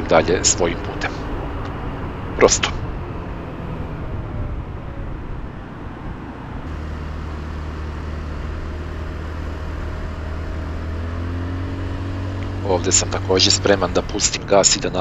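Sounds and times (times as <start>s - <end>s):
low engine hum: 0.0s - 15.0s
wind and road noise: 0.0s - 15.0s
scooter engine running: 6.6s - 15.0s.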